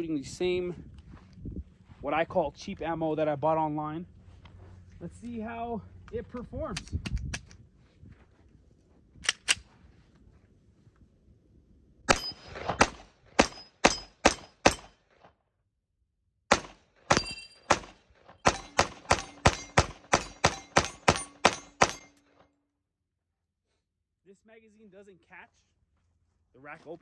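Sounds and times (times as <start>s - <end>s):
sharp clicks: 6.1s - 7.6s
pistol shots: 12.1s - 15.0s, 16.5s - 22.2s
faint ring of steel target: 13.4s - 15.0s, 17.1s - 22.4s.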